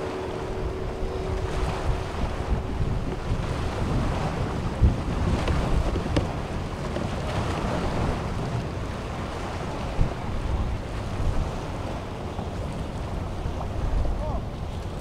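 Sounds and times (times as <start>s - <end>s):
low thumps: 0.0s - 7.0s
wind buffeting microphone: 0.0s - 15.0s.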